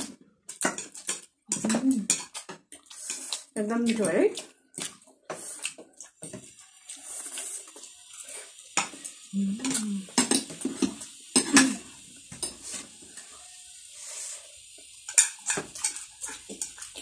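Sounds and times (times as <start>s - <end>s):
cutlery clinking on plates: 0.5s - 3.2s, 9.6s - 12.8s, 15.1s - 16.9s
chewing and slurping noodles: 2.3s - 3.6s, 4.3s - 8.6s
person humming: 9.3s - 10.2s.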